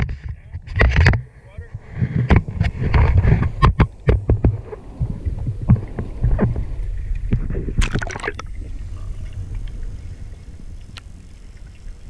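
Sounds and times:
muffled underwater rumble: 0.0s - 12.0s
water splashing and sloshing: 0.0s - 12.0s.

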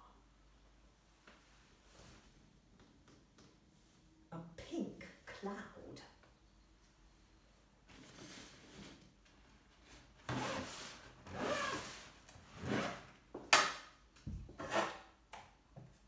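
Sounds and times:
fabric bag rubbing: 10.3s - 13.0s
zip pulled shut: 11.3s - 12.0s.

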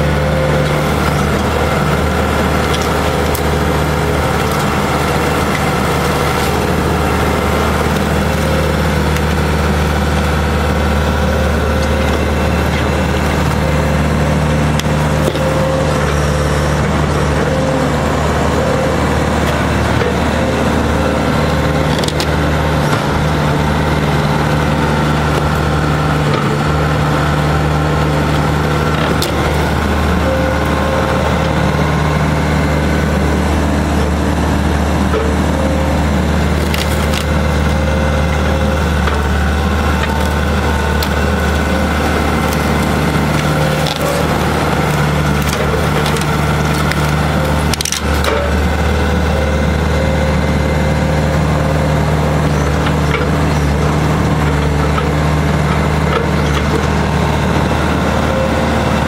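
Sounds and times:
diesel engine running: 0.0s - 59.0s
burnt wood cracking: 0.5s - 16.0s, 35.9s - 49.1s.

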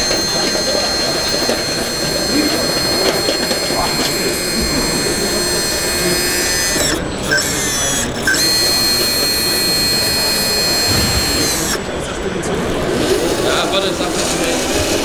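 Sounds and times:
small hydraulic pump whine: 0.0s - 12.0s
murmur of exhibition hall crowd: 0.0s - 15.0s.

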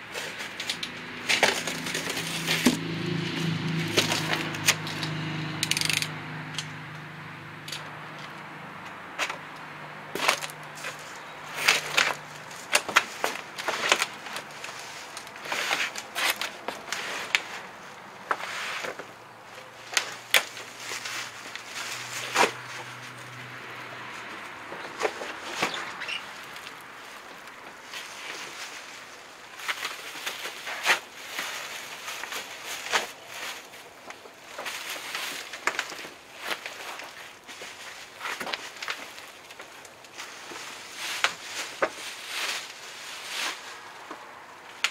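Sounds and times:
plastic wrap and cardboard rustling: 0.1s - 2.8s, 10.1s - 23.5s, 24.3s - 44.9s
sharp packaging crackles: 25.0s - 44.9s.

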